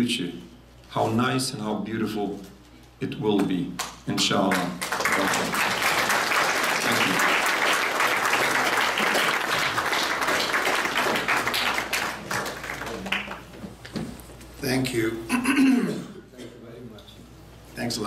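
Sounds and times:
audience applauding: 4.5 - 13.6.

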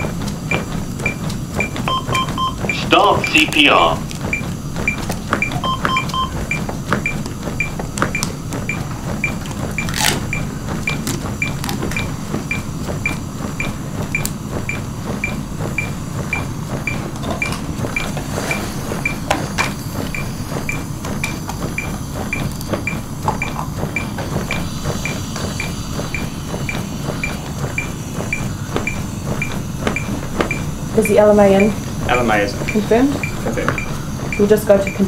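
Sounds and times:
chest compressions on manikin: 0.0 - 12.7
metronome high beeps: 1.9 - 4.0, 5.4 - 6.4, 31.5 - 31.8.

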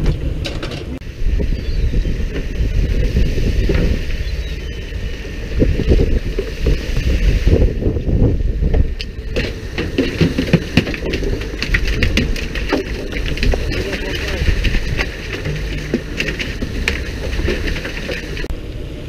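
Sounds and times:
boat running noise: 0.0 - 19.0
wind on microphone: 0.0 - 19.0
knocks and clatter on deck: 9.3 - 18.5.

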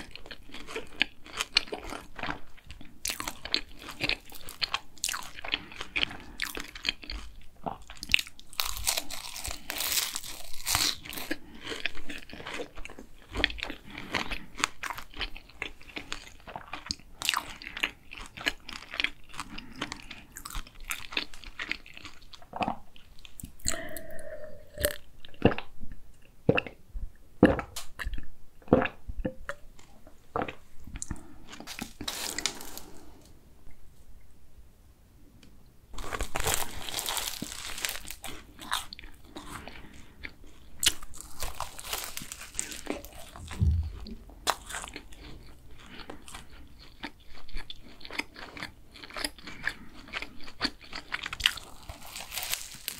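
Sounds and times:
crunchy pastry chewing: 0.0 - 25.7, 29.8 - 33.4, 36.0 - 52.9.

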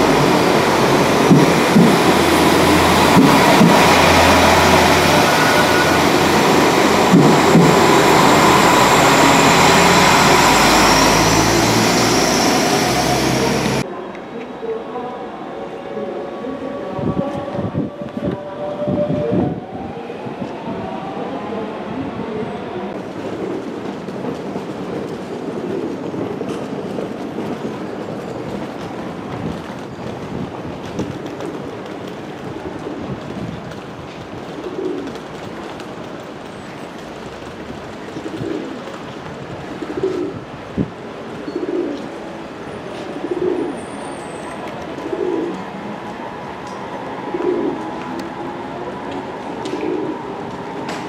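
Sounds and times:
train running rumble and hiss: 0.0 - 13.9
pigeon cooing: 43.2 - 43.8, 45.0 - 45.6, 47.3 - 47.8, 49.7 - 50.3.

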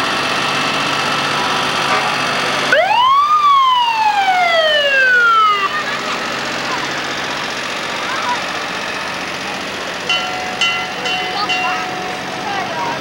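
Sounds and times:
street noise: 0.0 - 13.0
siren winding up and down: 2.7 - 5.9.

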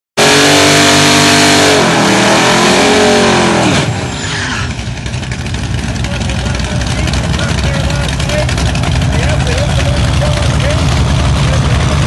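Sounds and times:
engines revving high: 0.2 - 12.0
tyres squealing: 4.0 - 4.8.

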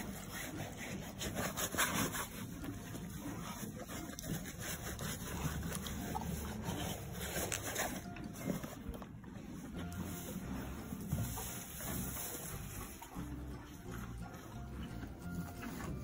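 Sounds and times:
straw bedding rustling: 9.7 - 14.2.

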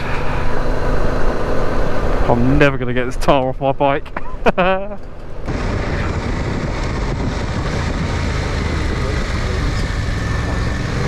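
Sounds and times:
road noise: 0.0 - 11.0
wind rush: 5.4 - 11.0
motorcycle engine running: 5.5 - 11.0.

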